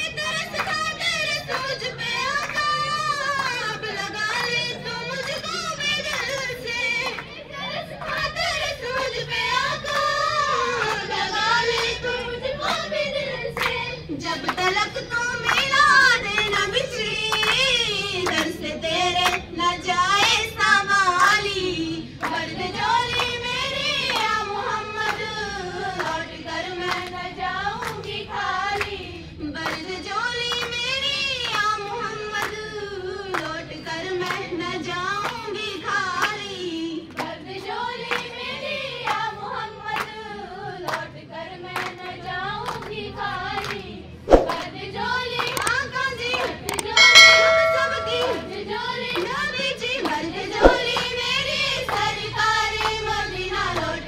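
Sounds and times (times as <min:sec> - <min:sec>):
rhythmic handclapping: 0:15.4 - 0:16.6, 0:45.4 - 0:49.3
sharp knock: 0:44.3 - 0:44.6, 0:50.6 - 0:51.0
girls singing: 0:44.6 - 0:54.0.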